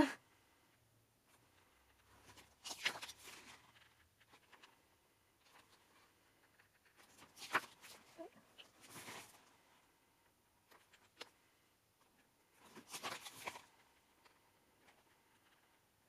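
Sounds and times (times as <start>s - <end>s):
paper pages turning: 1.4s - 4.8s, 5.4s - 9.6s, 12.6s - 15.6s.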